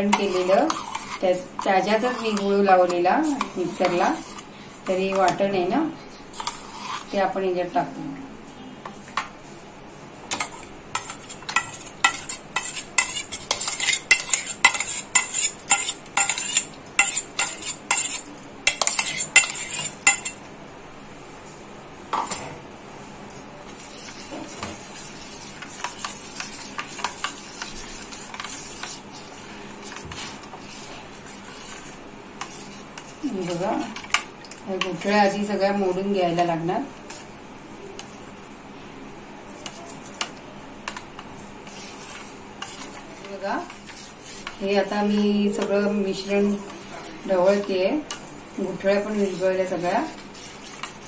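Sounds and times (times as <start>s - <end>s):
stirring liquid in steel tin: 0.0s - 5.4s, 10.4s - 20.4s, 23.8s - 34.2s, 41.6s - 46.9s, 47.5s - 51.0s
spoon scraping steel jar: 11.0s - 20.4s.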